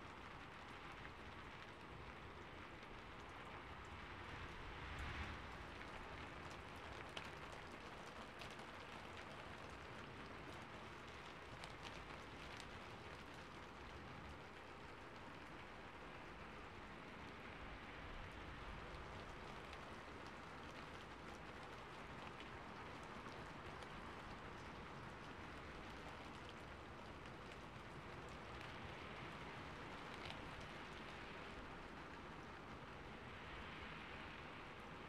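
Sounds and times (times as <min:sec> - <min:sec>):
rain drop ticks: 0:00.0 - 0:35.0
soft rain hiss: 0:00.0 - 0:35.0.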